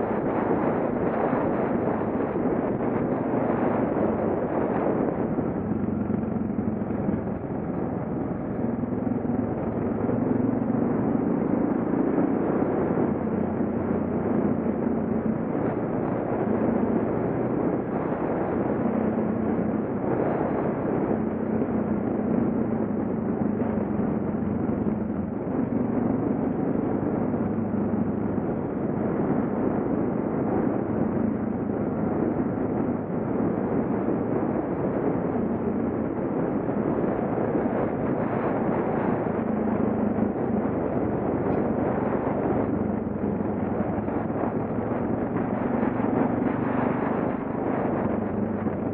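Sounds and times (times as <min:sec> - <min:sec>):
wind noise: 0:00.0 - 0:48.9
motorcycle engine running: 0:02.2 - 0:17.2.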